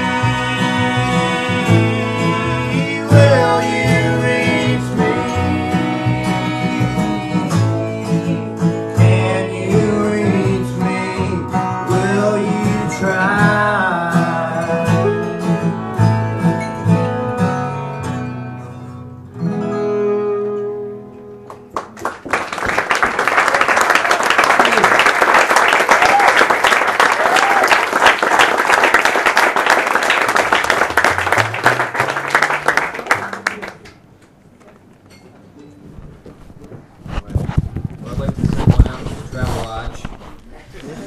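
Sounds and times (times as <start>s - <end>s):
person singing: 0.0s - 15.9s
string band playing folk: 0.0s - 22.3s, 30.3s - 33.2s
audience applauding: 21.5s - 34.1s.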